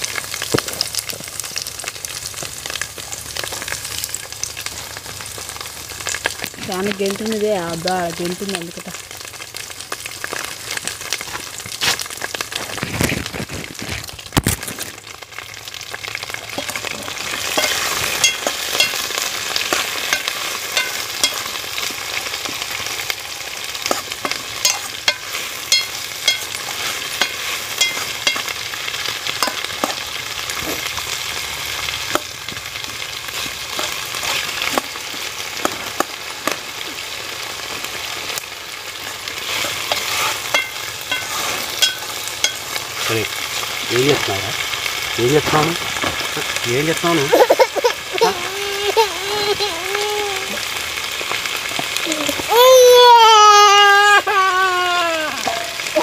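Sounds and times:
vegetables sizzling in a pan: 0:00.0 - 0:56.0
spoon scraping and clinking on pan: 0:16.5 - 0:22.0, 0:23.8 - 0:28.6, 0:29.3 - 0:30.0, 0:33.4 - 0:34.8, 0:39.5 - 0:42.8.

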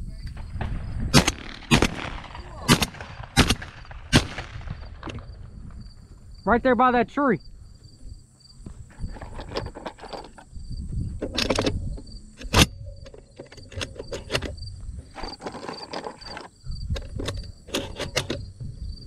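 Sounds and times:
insects chirping: 0:00.0 - 0:19.0
handling rustles and knocks: 0:07.8 - 0:18.8.

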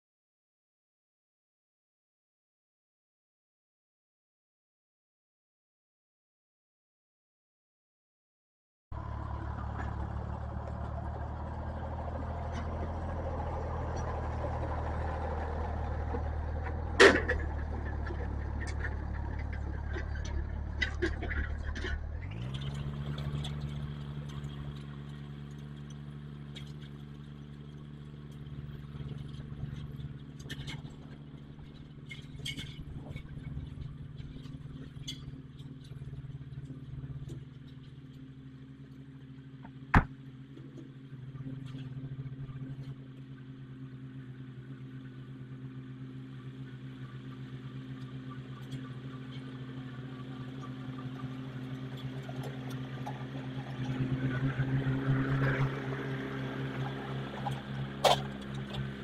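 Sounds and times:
tractor engine running: 0:08.9 - 0:59.0
harrow clatter: 0:09.0 - 0:43.4.

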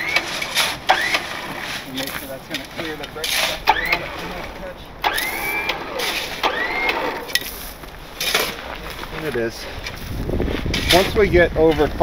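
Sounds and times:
short rising squeaks: 0:00.0 - 0:01.6, 0:03.3 - 0:04.3, 0:05.0 - 0:07.6
rigging clicking and ratcheting: 0:00.0 - 0:07.5.

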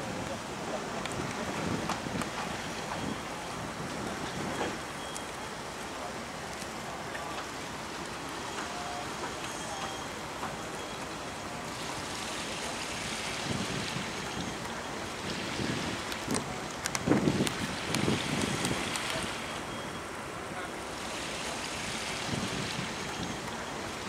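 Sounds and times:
wind gusts rumbling on microphone: 0:00.0 - 0:04.9, 0:13.2 - 0:19.4, 0:22.1 - 0:24.0
wind noise: 0:01.1 - 0:04.7, 0:13.4 - 0:14.5, 0:15.2 - 0:19.3, 0:22.2 - 0:23.4.

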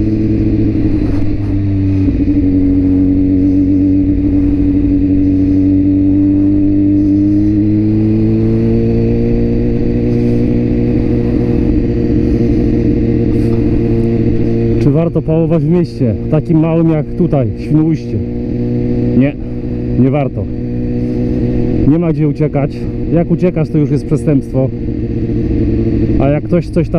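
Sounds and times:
motorcycle engine riding: 0:00.0 - 0:26.9.

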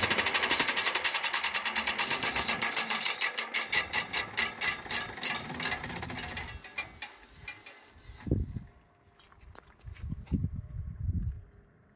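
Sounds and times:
diesel engine knocking: 0:00.0 - 0:07.7.

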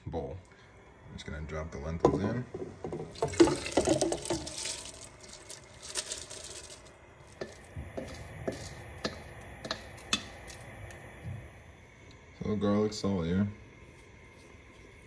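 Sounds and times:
lentils and water splashing into pot: 0:02.8 - 0:10.6.

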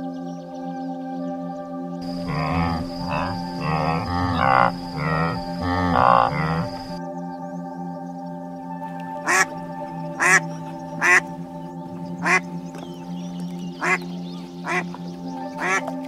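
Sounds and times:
background music with held notes: 0:00.0 - 0:16.0
ducks quacking: 0:02.0 - 0:07.0, 0:09.3 - 0:09.5, 0:10.2 - 0:10.4, 0:11.0 - 0:11.2, 0:12.2 - 0:12.4, 0:13.8 - 0:14.0, 0:14.7 - 0:14.9, 0:15.6 - 0:15.8.

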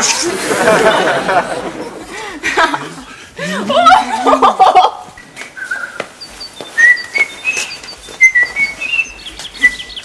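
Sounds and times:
bird chirping whistled notes: 0:05.6 - 0:10.0.

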